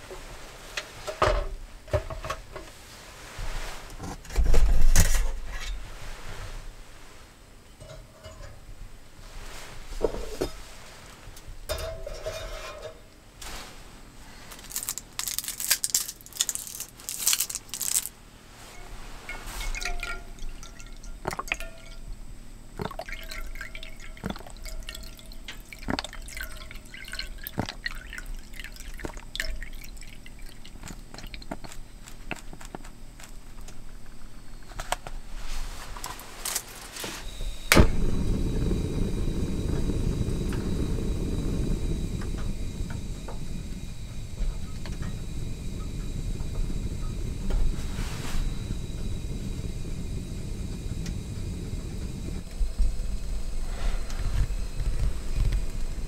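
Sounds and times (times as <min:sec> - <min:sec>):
cup clinking on stove grate: 0:11.7 - 0:13.0, 0:18.8 - 0:22.1
milk pouring into metal cup: 0:19.6 - 0:22.1, 0:22.8 - 0:31.6
gas burner rushing: 0:35.3 - 0:56.0.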